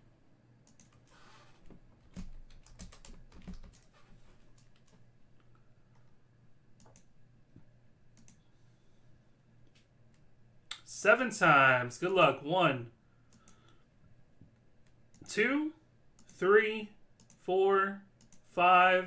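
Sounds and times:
faint low hum: 0:00.0 - 0:19.0
computer keyboard typing: 0:02.0 - 0:03.9, 0:17.2 - 0:17.4.

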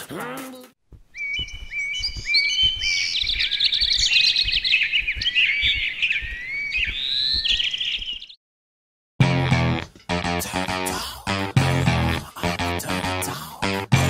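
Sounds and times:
soft low thumps: 0:00.9 - 0:08.2
birds chirping and singing: 0:01.1 - 0:08.4.

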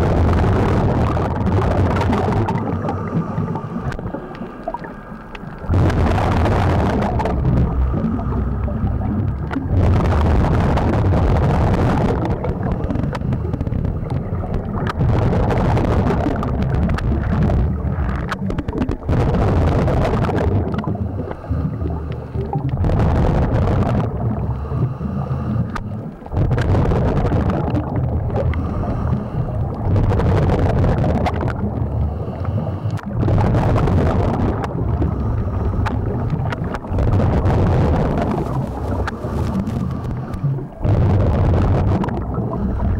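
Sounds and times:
exhaled bubbles rumbling underwater: 0:00.0 - 0:42.9.

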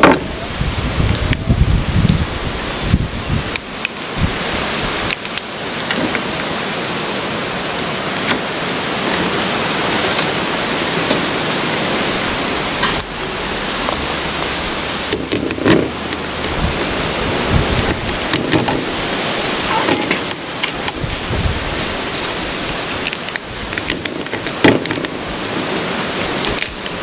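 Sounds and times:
steady rushing hiss: 0:00.0 - 0:27.0
lobster shell cracking: 0:23.0 - 0:25.1, 0:26.4 - 0:26.9.

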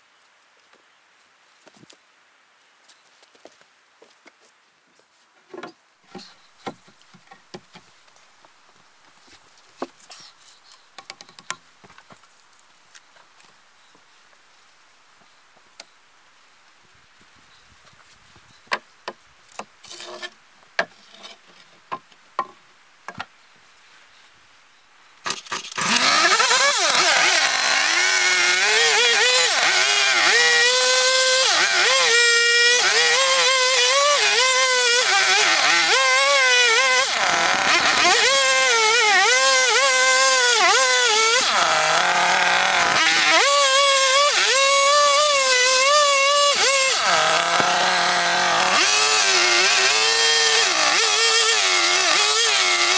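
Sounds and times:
wooden knocks of logs: 0:05.5 - 0:07.9, 0:09.8 - 0:10.0, 0:11.0 - 0:12.2, 0:21.9 - 0:23.3
chainsaw revving: 0:25.3 - 0:52.9.

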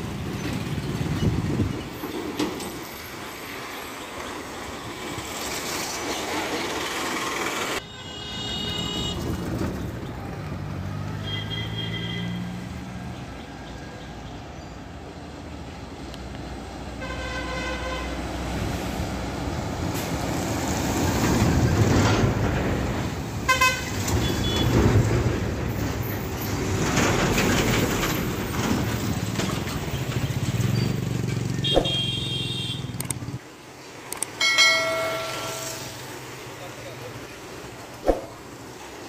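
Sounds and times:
diesel trucks passing: 0:00.0 - 0:39.0
vehicle horns: 0:07.8 - 0:09.3, 0:11.2 - 0:12.6, 0:17.0 - 0:18.2, 0:23.5 - 0:24.9, 0:31.6 - 0:33.0.

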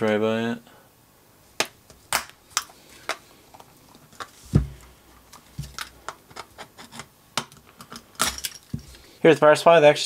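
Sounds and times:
dull thump on work surface: 0:04.5 - 0:04.8.

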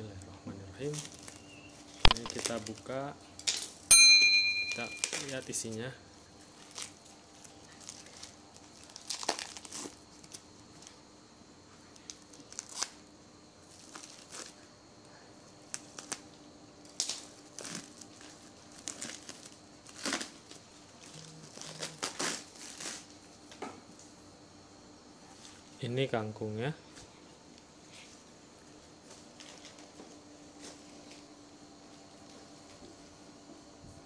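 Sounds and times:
plastic wrap crinkling: 0:00.8 - 0:03.8, 0:04.7 - 0:05.8, 0:06.4 - 0:11.0, 0:11.9 - 0:14.6, 0:15.6 - 0:16.3, 0:16.9 - 0:23.4.

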